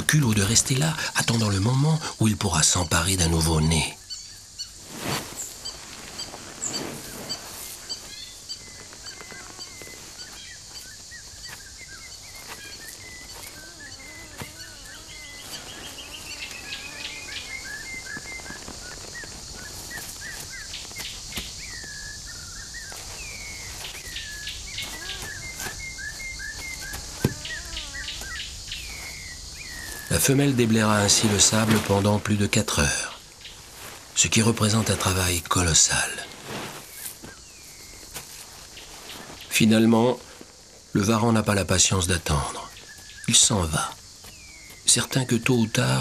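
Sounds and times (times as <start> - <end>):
birds chirping: 0.0 - 46.0
steady high hiss: 0.0 - 46.0
bird trill: 5.6 - 31.8.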